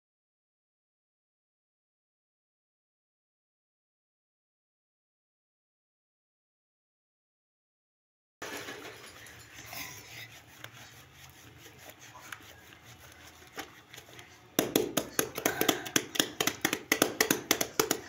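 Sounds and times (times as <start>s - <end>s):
wet cloth scrubbing on concrete: 9.4s - 15.2s.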